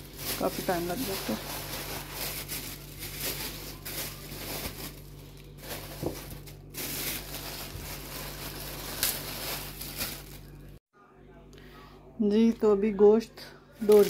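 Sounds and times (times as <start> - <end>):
plastic bags rustling: 0.0 - 10.8, 13.8 - 14.0.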